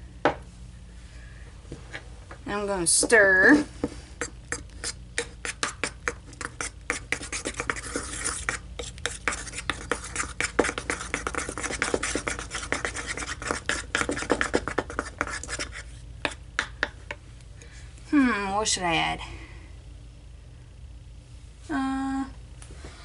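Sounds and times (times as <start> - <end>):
stick scraping a bowl: 4.2 - 16.4.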